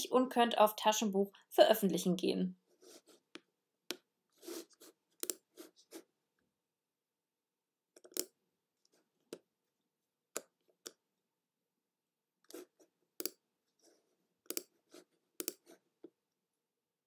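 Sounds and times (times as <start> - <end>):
computer mouse clicks: 5.2 - 5.4, 8.0 - 8.4, 13.2 - 13.4, 14.4 - 14.7, 15.4 - 15.7.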